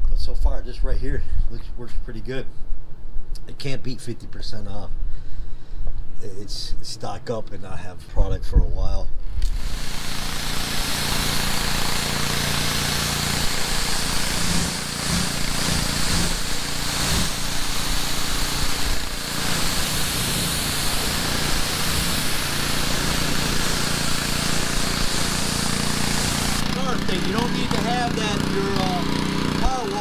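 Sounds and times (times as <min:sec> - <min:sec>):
pressure washer engine running: 0:09.4 - 0:30.0
high-pressure spray hissing on car: 0:09.5 - 0:30.0.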